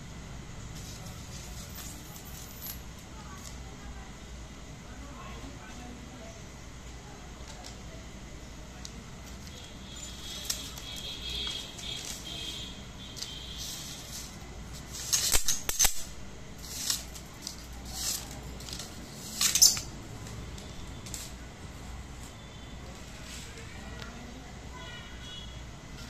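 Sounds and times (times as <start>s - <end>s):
paper scraping across brass: 9.5s - 15.6s, 16.6s - 19.9s
rice grains rattling on metal: 9.9s - 20.0s.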